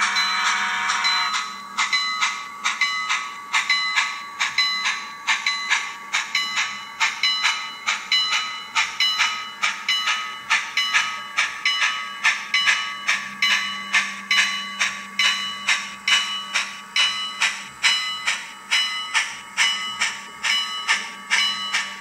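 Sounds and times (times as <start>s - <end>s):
model steam locomotive chuffs: 0.0s - 22.0s.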